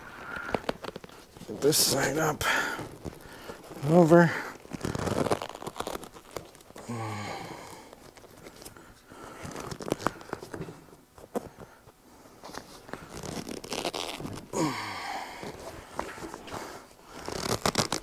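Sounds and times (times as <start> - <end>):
seat cover rustling: 0.0 - 6.8, 9.4 - 14.6, 15.4 - 18.0.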